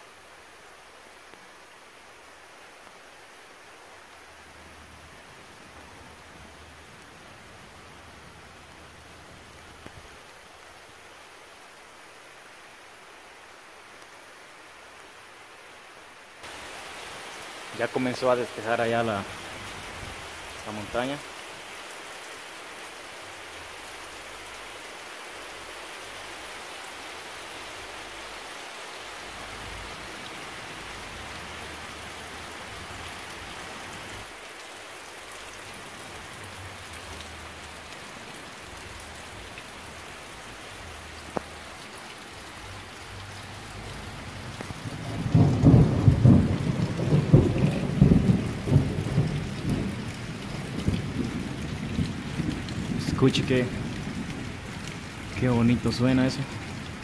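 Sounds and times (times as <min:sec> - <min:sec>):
steady rain falling: 0:00.0 - 0:57.0
rolling rumble of thunder: 0:44.7 - 0:54.6.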